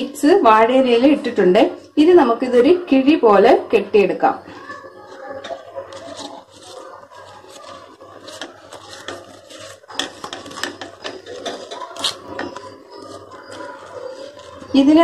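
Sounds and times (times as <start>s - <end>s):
banana leaf rustling and crinkling: 5.0s - 14.8s.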